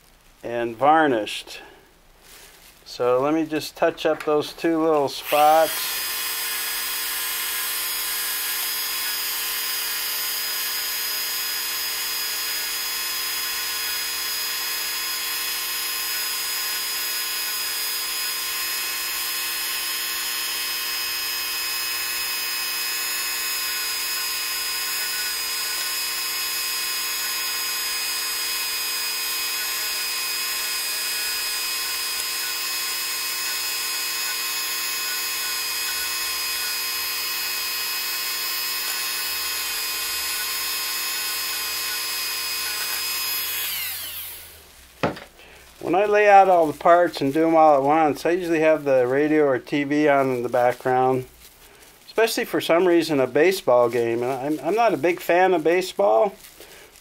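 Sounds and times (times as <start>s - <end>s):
rotary tool whining: 5.2s - 44.6s.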